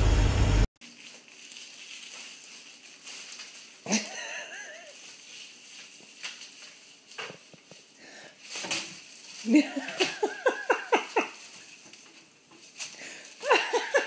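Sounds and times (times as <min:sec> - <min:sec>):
person laughing: 0:03.9 - 0:05.0, 0:09.4 - 0:11.4, 0:13.4 - 0:14.0
rustle and knock: 0:04.8 - 0:14.0.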